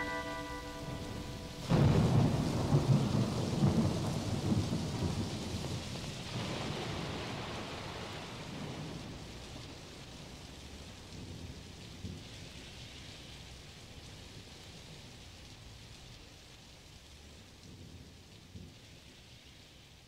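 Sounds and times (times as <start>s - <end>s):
held keyboard chord: 0.0s - 2.0s
thunder rumble: 0.0s - 10.4s
steady rain: 0.0s - 20.0s.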